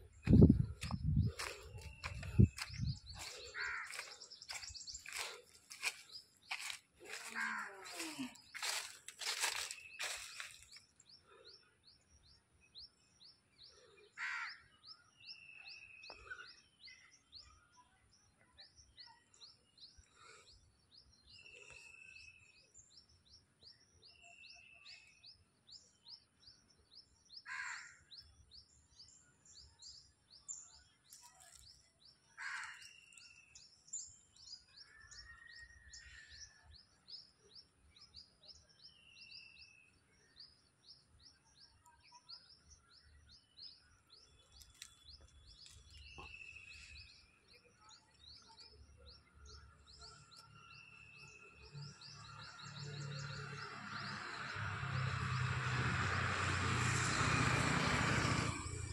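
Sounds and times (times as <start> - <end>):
harsh bird calls: 0.0 - 10.7.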